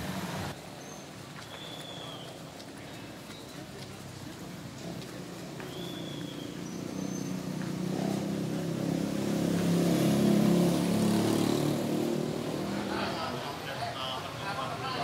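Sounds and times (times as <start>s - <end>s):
vehicle engine passing by: 4.6s - 13.6s.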